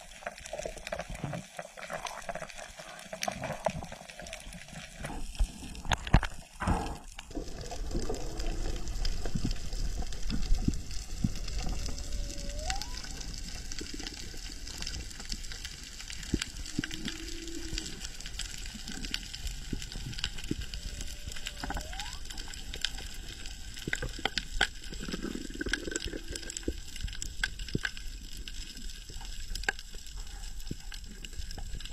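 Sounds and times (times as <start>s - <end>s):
underwater crackling clicks: 0.0s - 31.9s
rush of water: 5.8s - 24.3s.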